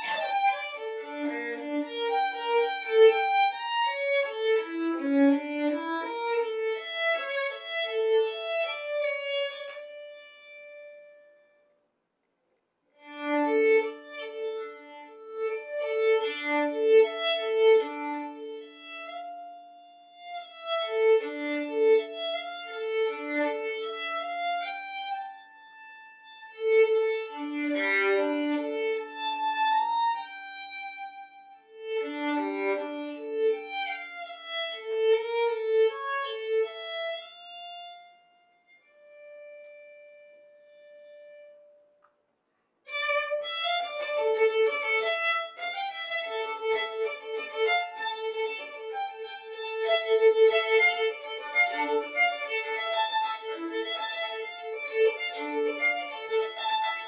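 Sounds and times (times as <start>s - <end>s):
solo violin playing: 0.0s - 11.5s, 13.0s - 41.8s, 42.9s - 57.0s.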